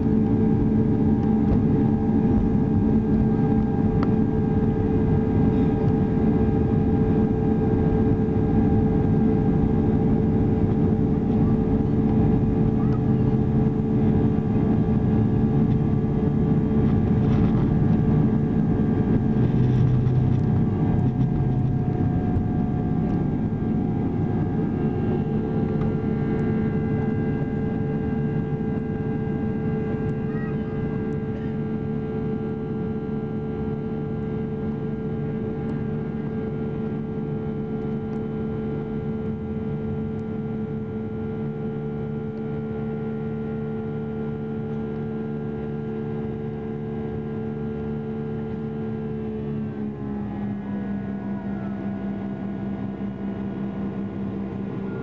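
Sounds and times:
jet engines humming: 0.0 - 40.3
heavy low rumble: 0.0 - 43.1.

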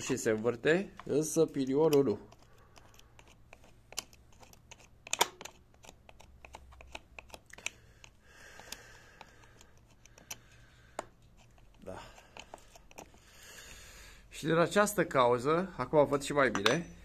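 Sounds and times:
clicks handling plastic parts: 0.0 - 13.2.

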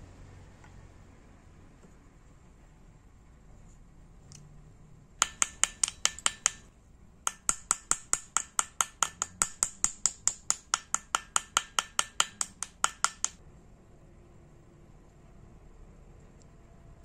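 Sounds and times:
small hammer tapping metal: 5.2 - 6.7, 7.3 - 13.4.

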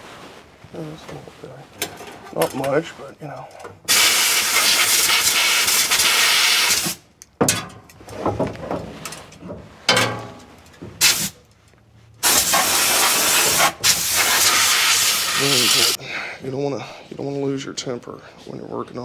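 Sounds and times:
compressed air hissing: 3.9 - 7.0, 11.0 - 11.4, 12.2 - 16.0.

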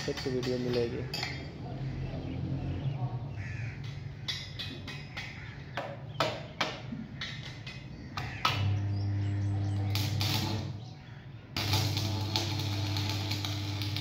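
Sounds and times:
sharp taps and knocks: 3.8 - 8.7
welding machine humming: 8.3 - 10.9, 11.5 - 14.0.

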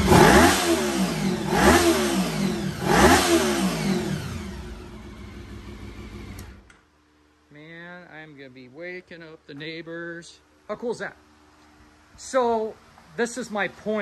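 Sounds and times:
motorcycle engine idling: 0.0 - 6.7
motorcycle engine revving: 0.0 - 6.7.

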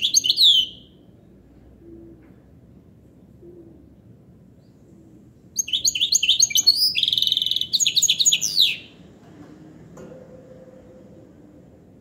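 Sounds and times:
finch singing twittering song: 0.0 - 0.9, 5.6 - 9.0.

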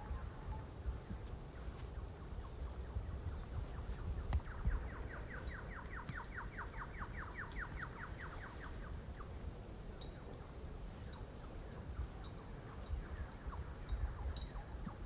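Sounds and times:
bird singing a trill: 2.0 - 9.4, 11.0 - 15.0.

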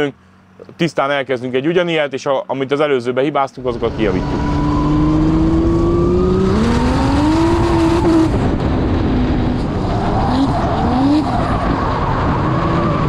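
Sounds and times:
wind rush: 3.6 - 13.0
car engine revving hard: 3.8 - 11.6.

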